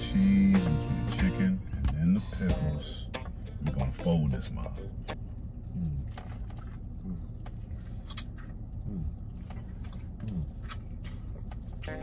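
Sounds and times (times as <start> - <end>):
person chewing fried chicken: 5.2 - 12.0
wet mouth clicks: 7.3 - 11.8.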